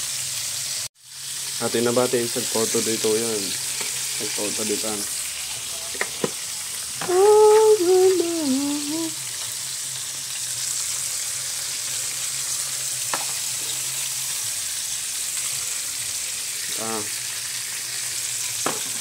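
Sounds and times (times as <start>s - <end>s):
fish sizzling in hot oil: 0.0s - 19.0s
person humming: 7.0s - 9.2s.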